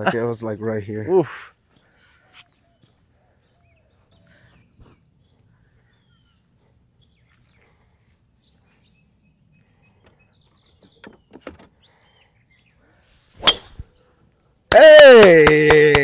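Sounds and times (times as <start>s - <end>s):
golf club striking ball: 13.4s - 13.8s.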